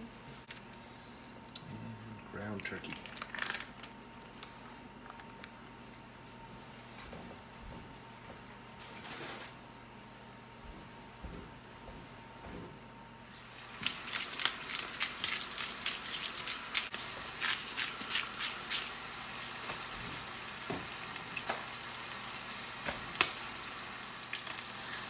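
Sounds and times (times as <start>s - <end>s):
meat sizzling in a pan: 13.3s - 25.0s.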